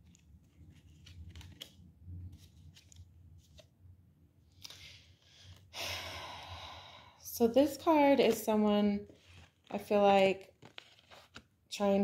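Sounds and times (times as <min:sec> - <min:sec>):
breath in and long sigh: 0:04.6 - 0:07.2.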